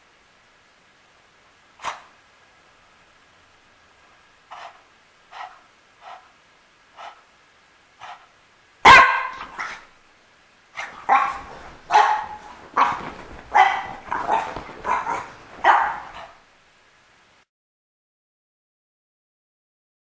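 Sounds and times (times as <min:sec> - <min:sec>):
puppy barking: 0:08.0 - 0:09.9, 0:10.8 - 0:16.4.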